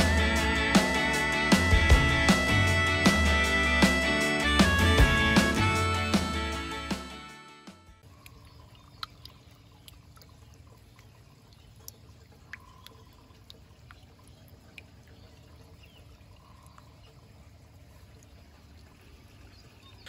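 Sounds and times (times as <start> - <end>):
water drips: 8.0 - 20.0
water trickling from a pipe: 8.0 - 20.0.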